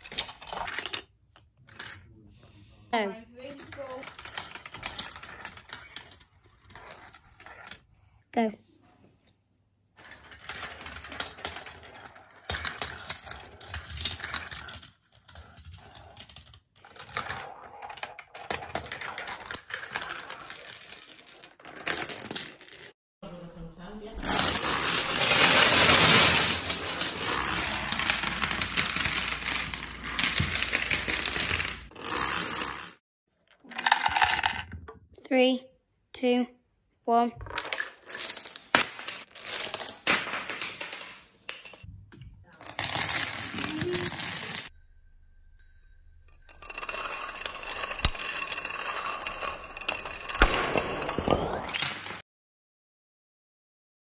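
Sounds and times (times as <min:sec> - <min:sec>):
dominoes toppling on wooden floor: 0:03.5 - 0:07.9, 0:10.0 - 0:22.9, 0:24.2 - 0:33.0, 0:33.7 - 0:34.7, 0:37.4 - 0:41.8, 0:42.6 - 0:44.7, 0:46.6 - 0:52.2.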